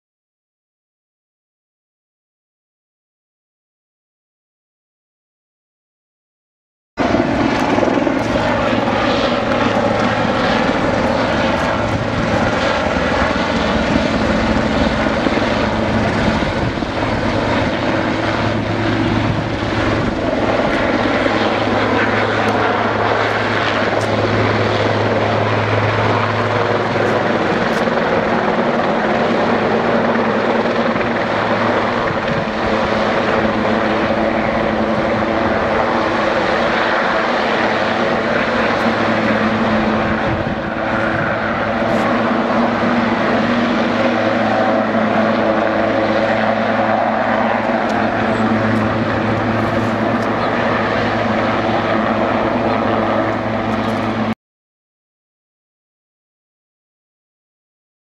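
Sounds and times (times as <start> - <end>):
helicopter rotor and turbine engine: 7.0 - 54.4.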